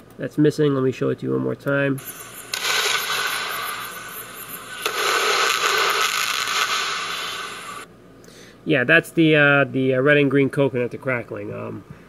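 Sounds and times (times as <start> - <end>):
dense crackling hiss: 0.1 - 7.9
firework shells bursting: 2.0 - 7.8.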